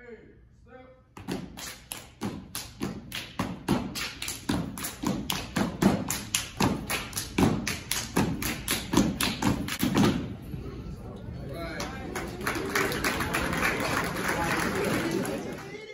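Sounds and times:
hand claps and slaps: 1.2 - 10.3.

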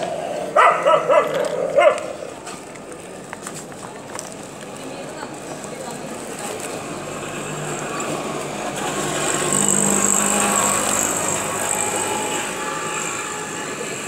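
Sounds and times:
small vehicle engine passing by: 6.2 - 14.0.

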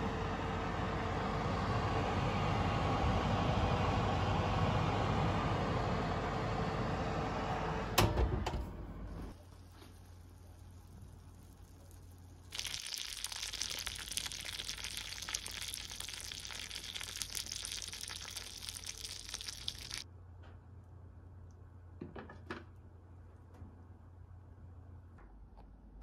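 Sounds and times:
hot butter sizzling: 9.4 - 20.0.

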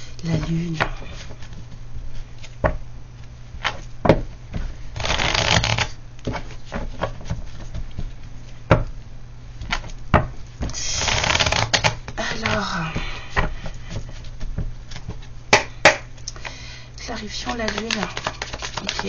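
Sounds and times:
cards shuffling: 4.6 - 8.2, 10.6 - 15.3, 17.2 - 19.0
cards tapping on table: 17.5 - 19.0.

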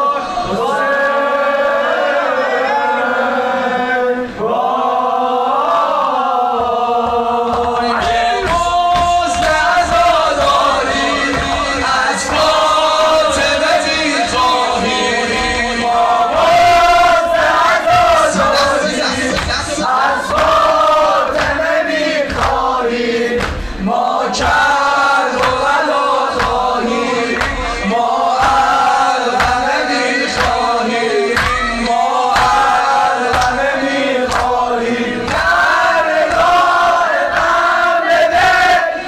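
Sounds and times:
crowd chanting in unison: 0.0 - 39.0
low chest-beating thumps: 6.6 - 24.7.

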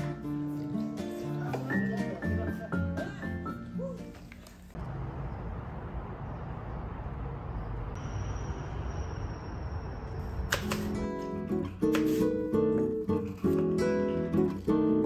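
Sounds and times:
acoustic guitar music: 0.0 - 4.4, 10.9 - 15.0.

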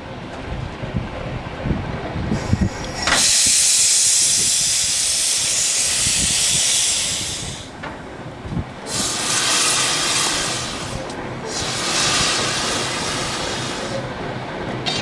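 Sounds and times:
steam locomotive hissing: 2.3 - 7.8, 8.8 - 14.2.

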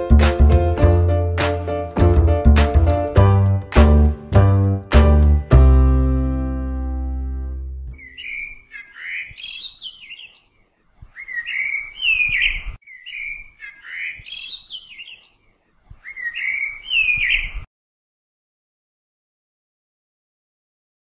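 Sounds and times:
musical chord ringing: 0.0 - 8.0
bird chattering and whistling: 8.0 - 10.4, 11.1 - 15.2, 16.0 - 17.6.

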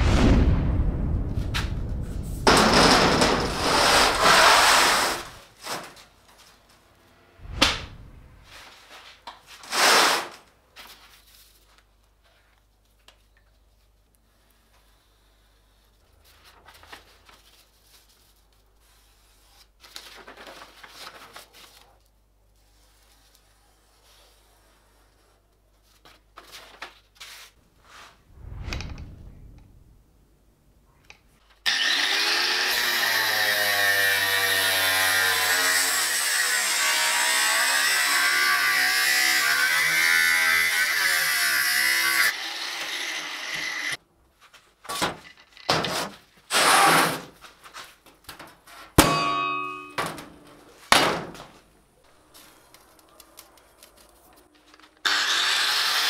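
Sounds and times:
steel knocking and clanking: 49.0 - 50.3.

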